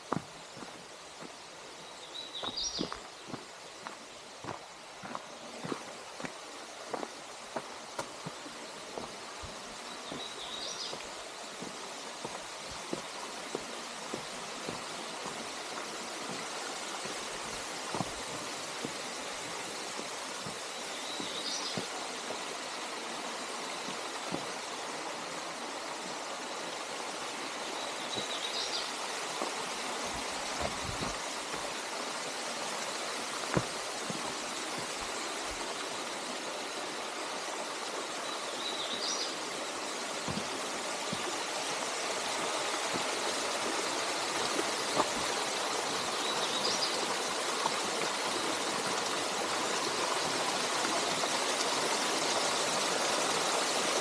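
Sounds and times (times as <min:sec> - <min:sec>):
waterfall rushing: 0:00.0 - 0:54.0.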